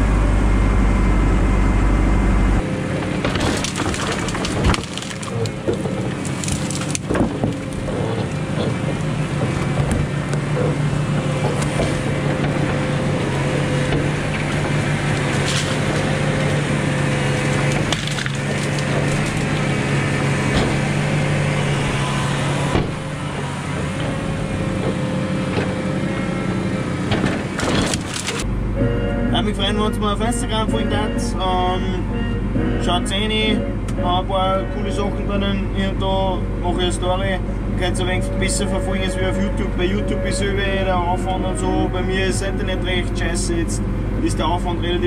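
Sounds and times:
engine humming: 0:00.0 - 0:45.0
branches cracking and snapping: 0:02.6 - 0:26.0, 0:27.0 - 0:28.5
crane grapple compressing brushwood: 0:02.6 - 0:28.5.

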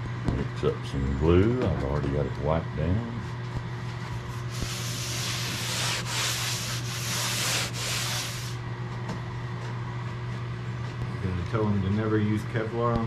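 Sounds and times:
steady low hum: 0:00.0 - 0:13.0
cloth rag rubbing boat hull: 0:04.2 - 0:08.6.

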